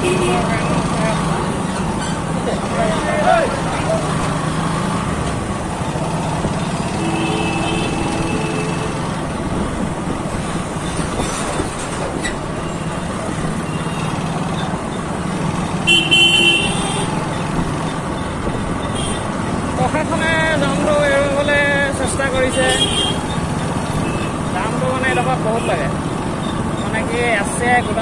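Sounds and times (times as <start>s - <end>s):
vehicle horn: 7.0s - 9.0s, 15.8s - 17.1s, 22.6s - 23.2s.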